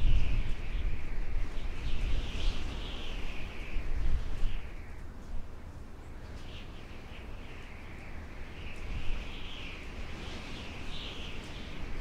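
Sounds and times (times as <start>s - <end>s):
howling wind: 0.0s - 12.0s.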